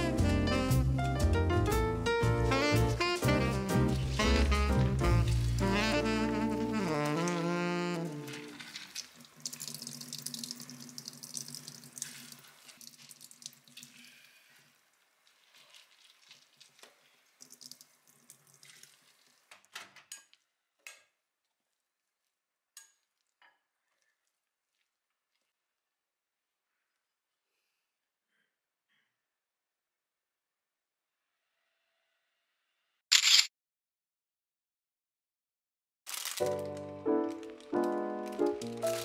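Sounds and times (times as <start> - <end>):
cabbage squelching and crackling: 4.0 - 7.5, 14.0 - 19.5, 36.1 - 39.0
water dripping into sink: 8.7 - 14.3, 15.7 - 19.5.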